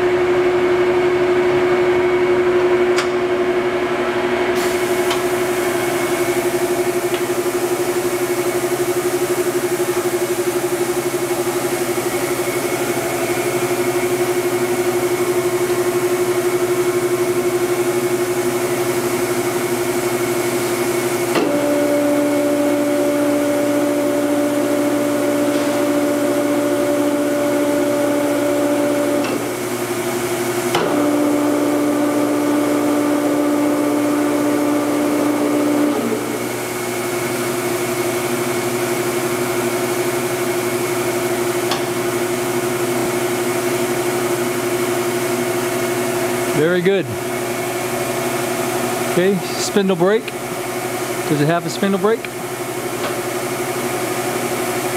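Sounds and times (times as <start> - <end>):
surface grinder humming: 20.6 - 36.9.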